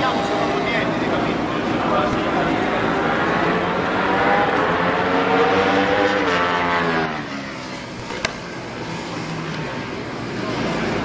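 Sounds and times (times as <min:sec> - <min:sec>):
motorcycle engine passing by: 0:02.5 - 0:07.7.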